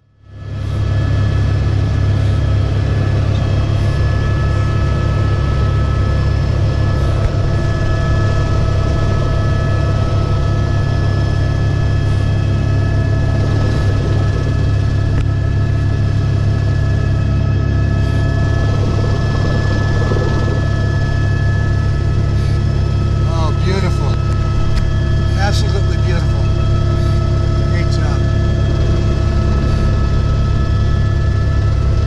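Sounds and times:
helicopter rotor and engine drone: 0.0s - 32.0s
high whining tones: 0.8s - 32.0s.

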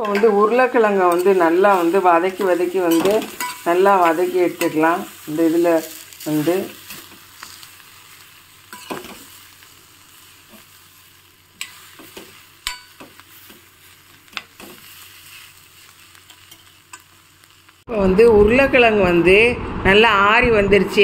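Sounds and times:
light sizzle of frying: 0.0s - 17.9s
metal ladle scraping pan: 1.0s - 6.1s.

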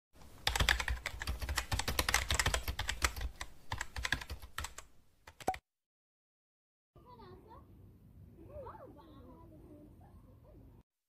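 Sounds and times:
keyboard keystroke clicks: 0.4s - 5.6s.

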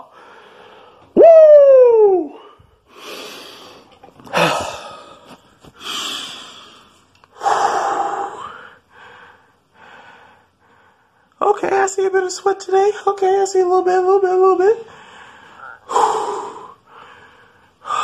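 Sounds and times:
man breathing heavily: 0.0s - 1.2s, 2.3s - 11.4s, 14.9s - 18.0s.

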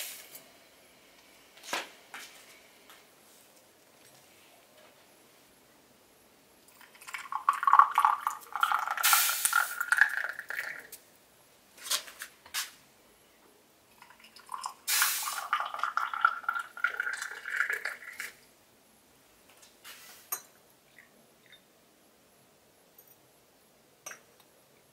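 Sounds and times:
water pouring into glass: 6.7s - 10.9s, 14.0s - 18.4s.

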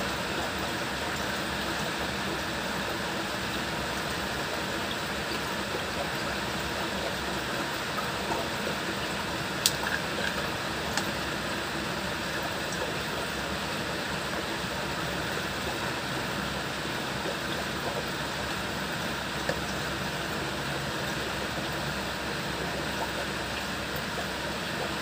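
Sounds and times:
fan-like hiss: 0.0s - 25.0s.

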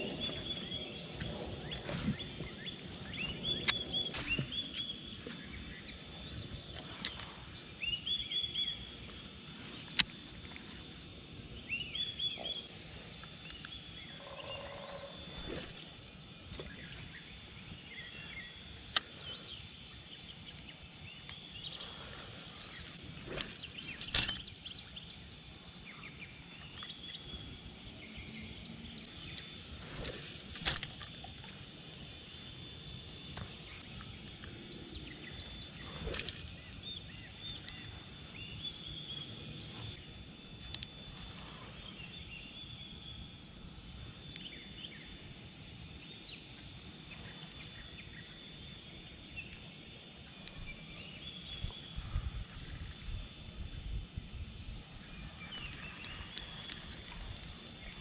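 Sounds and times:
birds chirping: 0.0s - 30.9s
fishing reel swishes and clicks: 15.2s - 16.6s, 23.0s - 24.6s, 29.2s - 31.2s, 35.6s - 37.9s.

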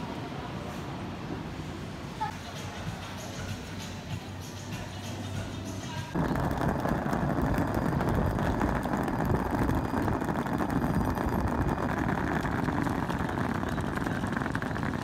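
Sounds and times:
suitcases rolling over brick paving: 6.2s - 15.0s.

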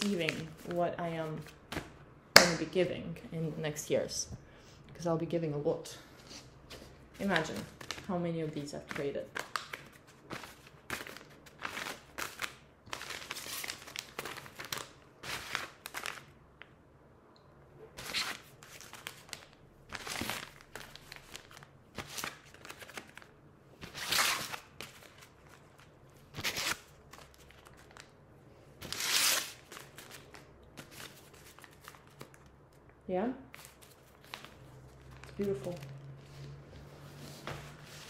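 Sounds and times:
paper envelopes rustling: 6.7s - 16.3s, 18.0s - 28.1s, 28.8s - 32.5s, 33.5s - 38.0s.

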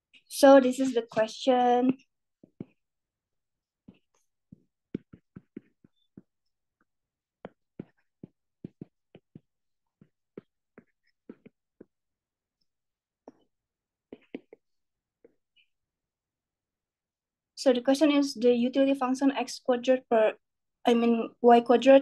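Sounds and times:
stylus tapping on glass screen: 3.8s - 6.5s, 7.4s - 12.0s.

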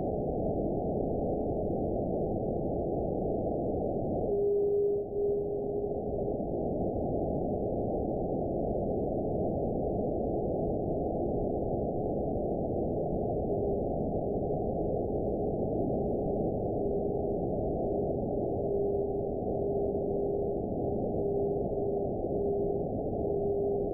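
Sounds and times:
thin steady whistle: 4.2s - 6.3s, 16.7s - 23.9s.

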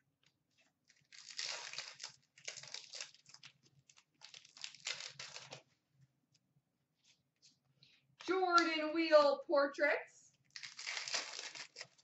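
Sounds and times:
foil wrapper crinkling and tearing: 0.9s - 5.6s, 10.5s - 12.0s.

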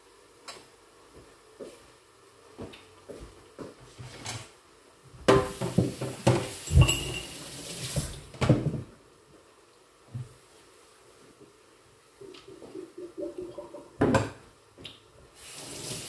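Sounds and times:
dishes and utensils clattering: 5.3s - 7.4s, 12.5s - 14.4s.

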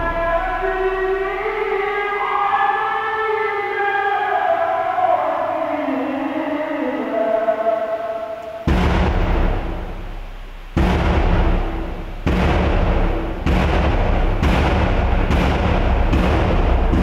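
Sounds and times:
large drum beaten in deep strokes: 8.7s - 17.0s.

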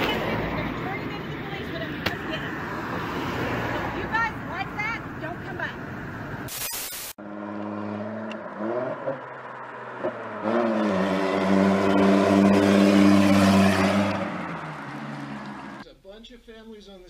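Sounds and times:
static hiss: 6.5s - 7.2s
loud car engine revving: 7.2s - 15.8s.

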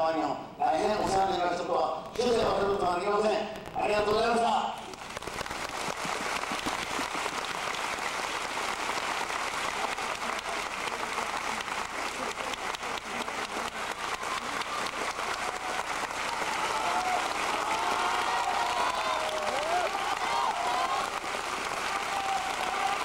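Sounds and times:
audience applauding: 4.8s - 23.0s.

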